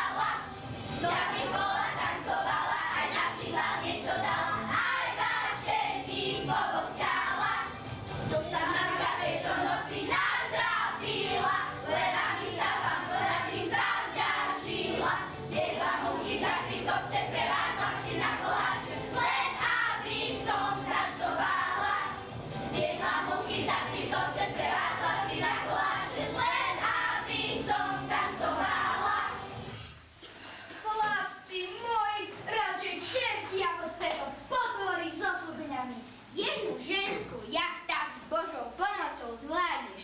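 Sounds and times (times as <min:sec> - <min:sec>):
children singing together: 0:00.0 - 0:29.8
musical accompaniment: 0:00.0 - 0:30.1.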